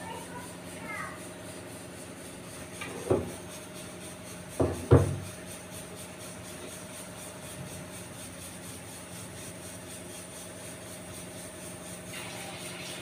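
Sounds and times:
food sizzling in hot oil: 11.8s - 13.0s.

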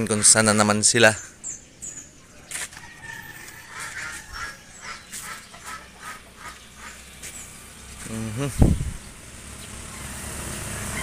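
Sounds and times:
fowl calling: 0.0s - 1.4s, 2.7s - 7.3s.

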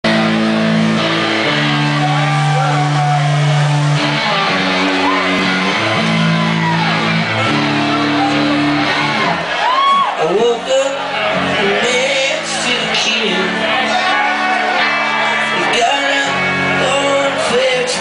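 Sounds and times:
rock band playing live: 0.0s - 18.0s
person singing: 10.1s - 14.0s, 15.3s - 18.0s.

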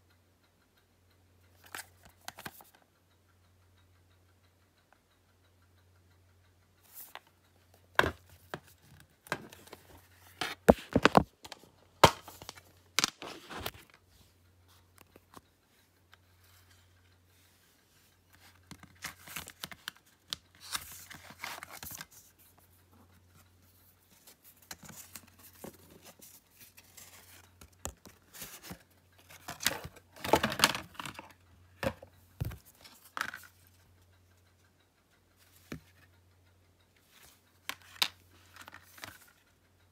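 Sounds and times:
plastic and card rustling: 8.0s - 14.0s, 18.4s - 22.6s, 24.1s - 33.6s, 37.6s - 39.4s
plastic cases clicking and knocking: 29.4s - 33.4s.

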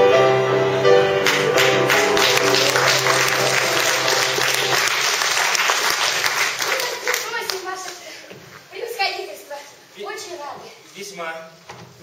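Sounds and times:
piano playing: 0.0s - 6.6s
audience applause: 1.2s - 8.0s.

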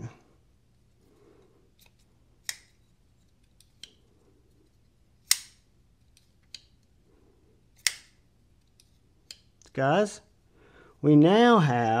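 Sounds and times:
knife blade snapping open: 5.3s - 5.6s, 7.8s - 8.1s.

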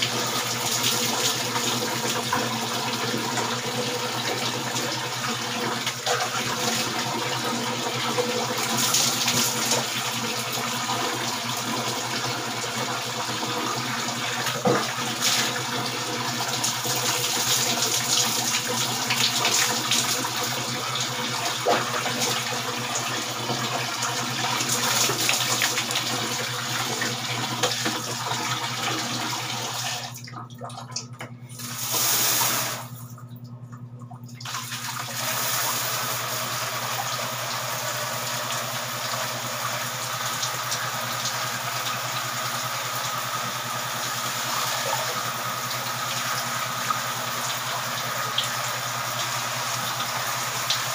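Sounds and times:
water running and splashing: 34.3s - 50.9s.

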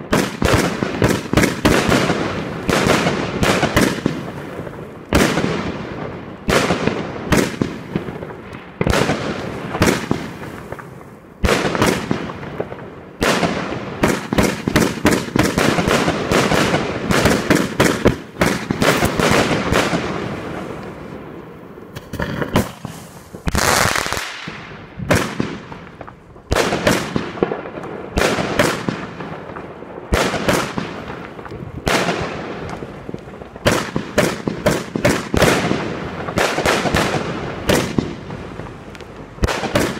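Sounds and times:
firework shells bursting: 13.3s - 39.9s.

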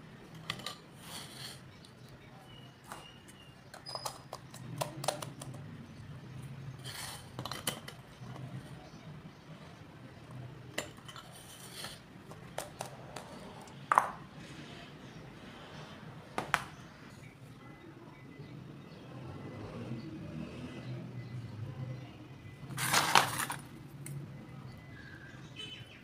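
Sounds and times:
plastic parts clicking and knocking: 2.8s - 5.7s, 7.3s - 8.6s, 12.2s - 14.1s.

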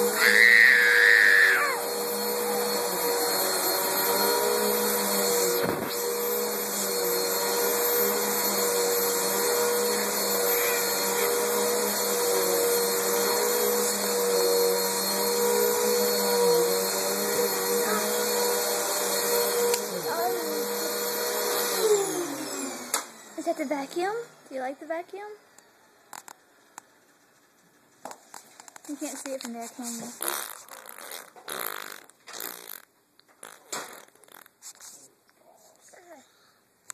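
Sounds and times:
baby squealing: 0.0s - 1.8s, 10.4s - 11.3s
vacuum cleaner running: 0.0s - 26.6s.

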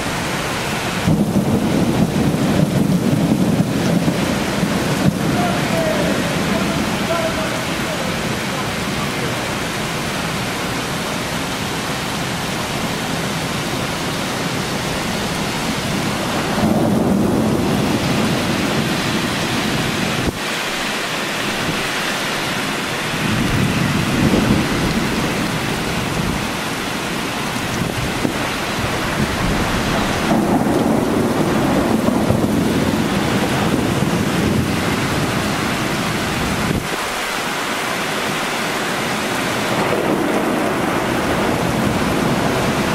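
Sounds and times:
heavy rain falling: 0.0s - 42.9s
rolling thunder: 0.9s - 8.3s, 15.2s - 20.4s, 22.8s - 37.1s, 39.5s - 42.9s.

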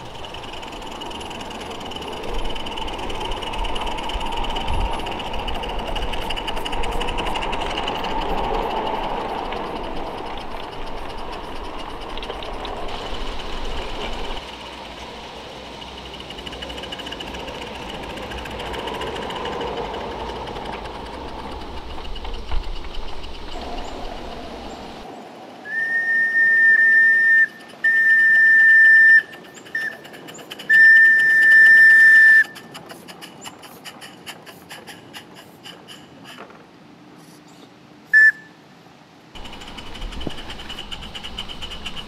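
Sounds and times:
cars clicking over track: 0.0s - 25.1s, 39.4s - 42.0s
steam locomotive hissing and rattling: 0.0s - 25.1s, 25.7s - 37.4s, 39.3s - 42.0s
steam whistle blasts: 25.7s - 29.9s, 30.7s - 32.6s, 38.1s - 38.6s.

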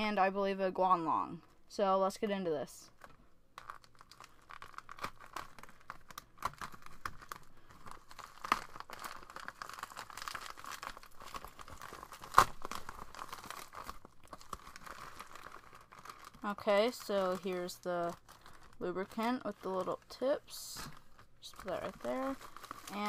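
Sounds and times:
plastic mailer crinkling and tearing: 2.9s - 23.0s
sharp plastic crack: 3.0s - 16.4s.

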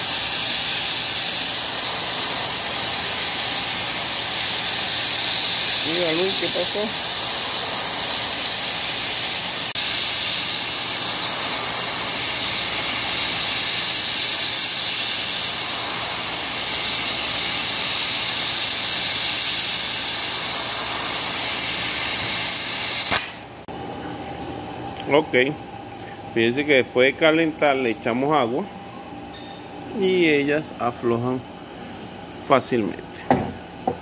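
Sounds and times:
torch flame hissing: 0.0s - 23.7s.

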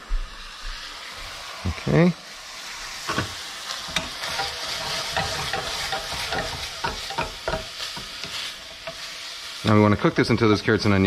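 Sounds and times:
food sizzling: 0.0s - 11.0s
wooden spatula scraping a pan: 3.0s - 9.3s.

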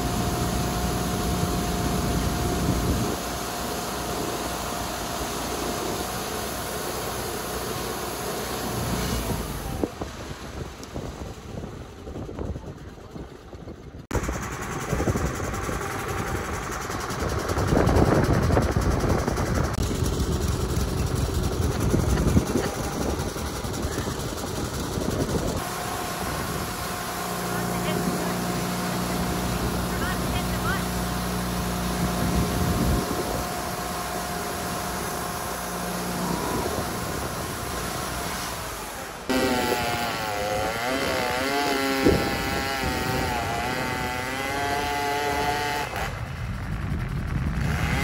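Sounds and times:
sawmill engine hum: 0.0s - 48.0s
band blade cutting wood: 39.3s - 46.1s.

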